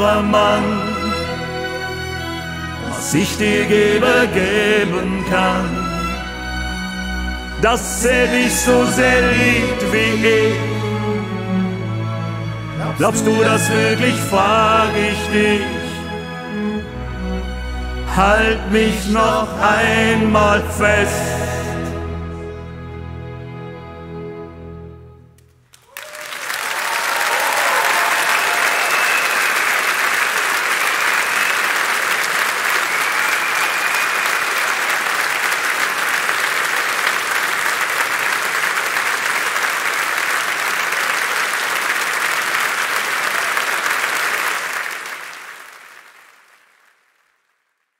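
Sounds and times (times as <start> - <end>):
audience applauding: 25.7 - 47.6.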